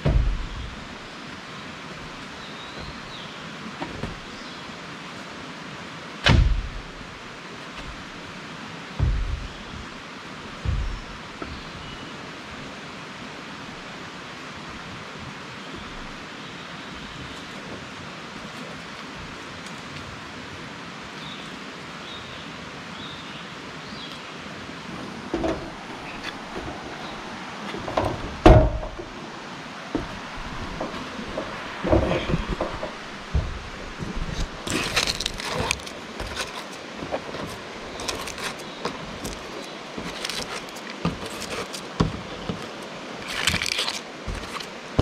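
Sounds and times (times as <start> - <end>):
low thud: 0.0 - 0.8, 6.2 - 7.0, 9.0 - 10.0, 10.6 - 11.6, 27.9 - 29.1, 29.9 - 34.5
steady rushing hiss: 0.0 - 45.0
sharp knock: 6.2 - 6.8, 9.0 - 9.6, 10.6 - 11.1.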